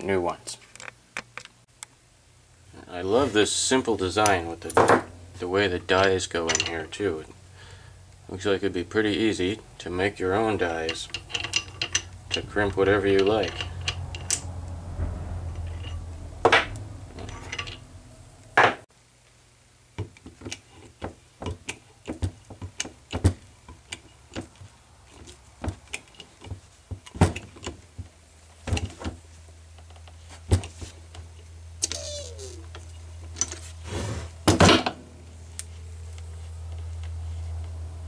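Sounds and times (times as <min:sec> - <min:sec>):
steady low hum: 0:01.7 - 0:18.8
loud metal clanks: 0:11.0 - 0:18.8
short falling squeak: 0:31.8 - 0:32.7.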